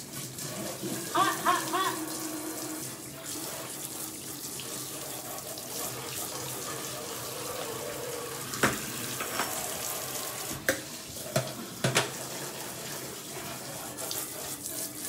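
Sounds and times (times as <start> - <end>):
kitchen tap running into sink: 0.0 - 15.0
cookware clanking: 8.6 - 9.8.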